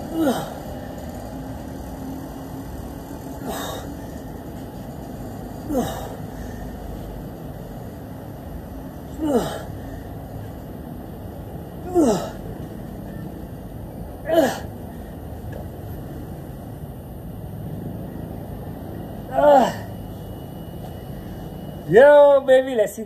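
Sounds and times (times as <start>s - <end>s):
low background noise: 0.0s - 23.0s
man grunting with effort: 0.1s - 0.7s, 5.7s - 6.2s, 9.1s - 9.8s, 11.8s - 12.4s, 14.2s - 14.7s, 19.3s - 19.9s.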